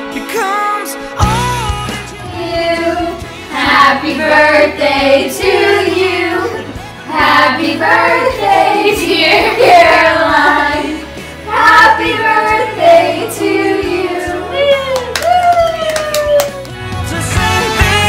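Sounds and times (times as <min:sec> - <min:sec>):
group singing with children's voices: 0:02.1 - 0:14.8.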